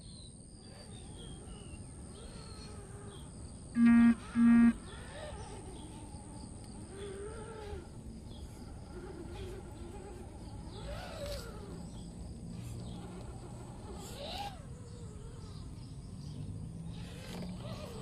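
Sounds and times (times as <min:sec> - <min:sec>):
faint bird chirps: 0:00.0 - 0:18.0
horn-like beeps: 0:03.8 - 0:04.9.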